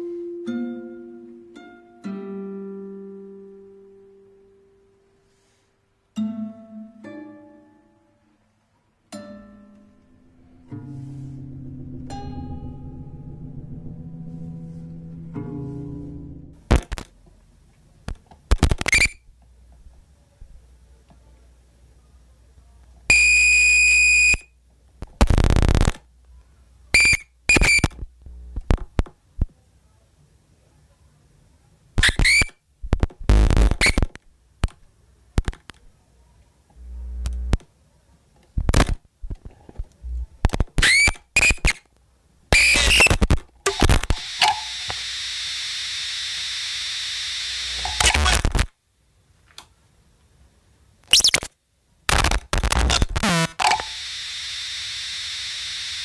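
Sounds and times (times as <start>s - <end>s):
harsh electronic buzz: 25.2s - 26.0s, 33.3s - 34.1s, 36.8s - 37.6s, 42.6s - 48.7s, 52.1s - 56.0s
high electronic beep: 42.6s - 43.1s
steady hiss with high tone: 43.8s - 48.5s, 53.7s - 56.0s
faint click: 49.4s - 49.8s.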